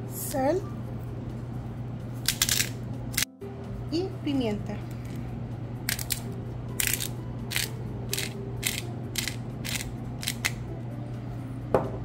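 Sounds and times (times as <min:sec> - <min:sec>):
pepper mill grinding: 0:02.3 - 0:02.8, 0:05.9 - 0:10.6.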